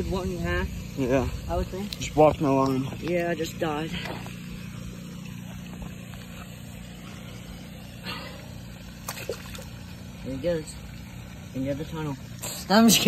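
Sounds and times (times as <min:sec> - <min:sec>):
steady low hum: 0:00.0 - 0:13.0
fish splashing into water: 0:04.3 - 0:10.2.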